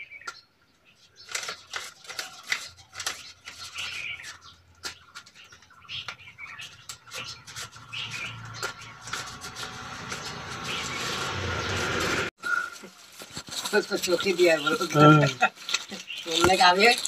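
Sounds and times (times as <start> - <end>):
banknotes being counted by hand: 1.2 - 12.2
chirps in background: 3.0 - 12.7.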